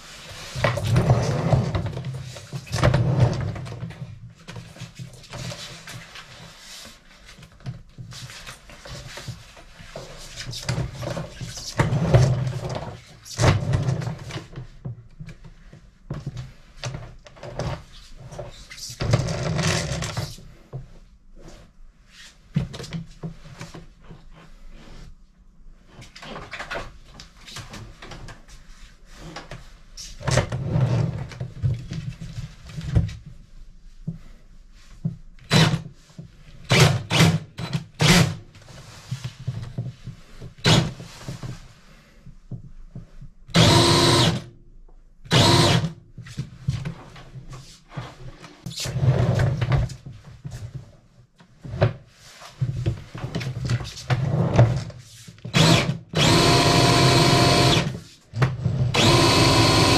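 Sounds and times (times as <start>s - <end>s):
cordless drill bursts: 43.6s - 44.5s, 45.3s - 45.9s, 55.5s - 58.0s, 59.0s - 59.9s.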